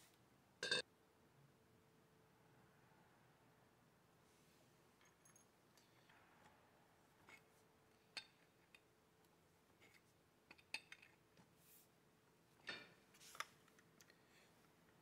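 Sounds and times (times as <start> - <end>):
faint metal clicks and clinks: 5.0 - 6.2.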